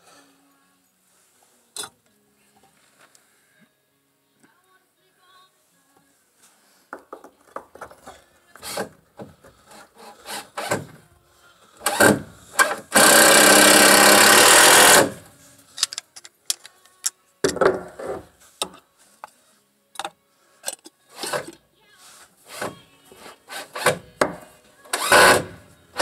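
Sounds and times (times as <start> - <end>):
hand tools clicking and scraping: 7.4 - 11.0, 11.8 - 19.4, 20.0 - 26.0.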